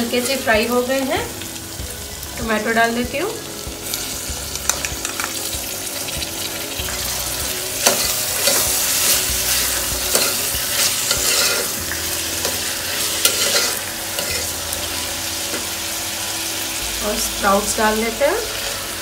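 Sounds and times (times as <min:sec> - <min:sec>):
vegetables sizzling in hot oil: 0:00.0 - 0:19.0
spoon scraping against pan: 0:07.8 - 0:11.8, 0:12.4 - 0:14.6.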